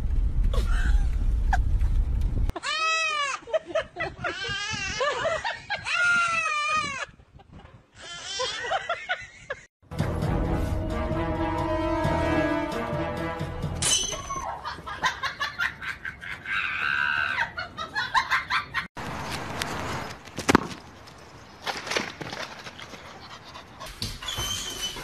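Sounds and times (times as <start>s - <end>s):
dog panting: 22.9s - 25.0s.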